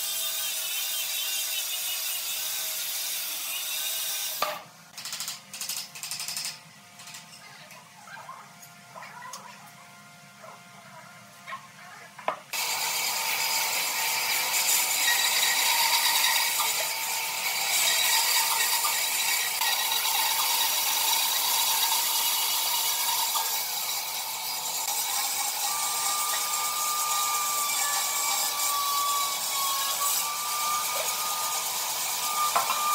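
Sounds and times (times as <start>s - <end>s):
bandsaw cutting wood: 0.0s - 4.6s, 12.5s - 32.9s.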